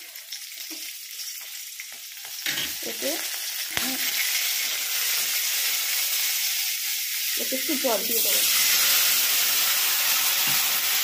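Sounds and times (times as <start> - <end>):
chillies sizzling in hot oil: 0.0 - 11.0.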